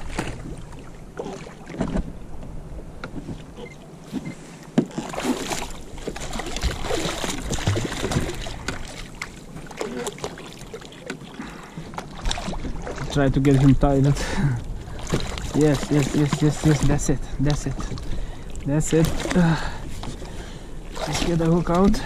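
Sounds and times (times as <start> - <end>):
water splashing: 0.0 - 2.2, 3.5 - 22.0
shark thrashing in water: 5.0 - 10.8.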